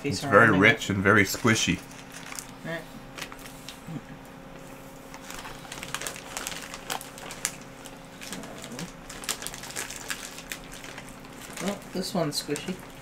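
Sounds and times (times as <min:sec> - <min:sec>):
plastic candy bag crinkling: 0:01.1 - 0:03.6, 0:05.1 - 0:13.0.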